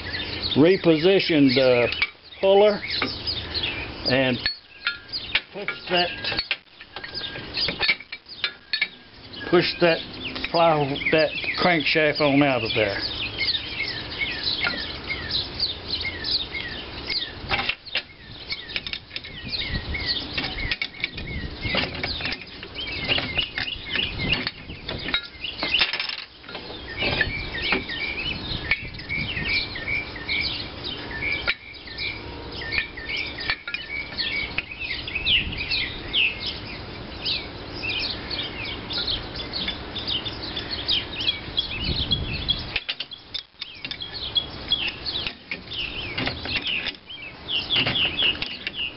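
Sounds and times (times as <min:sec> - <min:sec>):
birds chirping: 0:00.0 - 0:48.9
metal clicks and creaks: 0:04.1 - 0:10.7, 0:17.5 - 0:19.4, 0:20.2 - 0:28.0, 0:31.4 - 0:34.7, 0:42.7 - 0:48.8.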